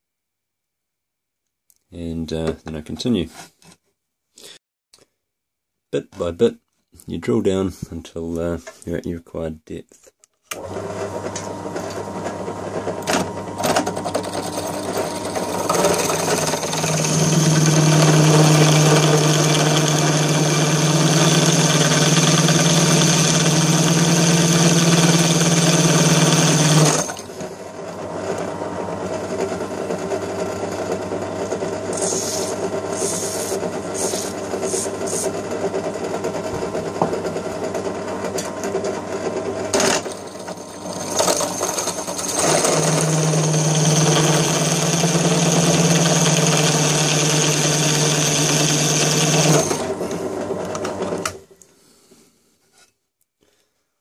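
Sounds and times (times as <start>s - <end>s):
drill press running: 10.5s - 51.4s
drill boring into metal: 13.0s - 27.4s, 31.8s - 35.5s, 39.7s - 50.3s.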